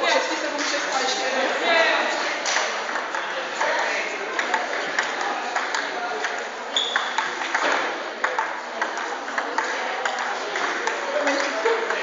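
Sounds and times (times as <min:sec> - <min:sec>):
murmur of voices: 0:00.0 - 0:12.0
table tennis balls clicking: 0:02.4 - 0:12.0.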